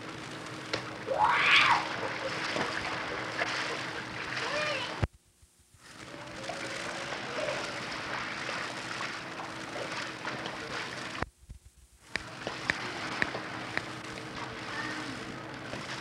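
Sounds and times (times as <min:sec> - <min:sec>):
tape hiss: 0:00.0 - 0:06.4, 0:10.6 - 0:15.7
low hum: 0:00.0 - 0:16.0
water sloshing: 0:00.6 - 0:05.0, 0:05.9 - 0:11.2, 0:12.1 - 0:16.0
faint children's voices: 0:04.4 - 0:05.1, 0:14.5 - 0:15.4.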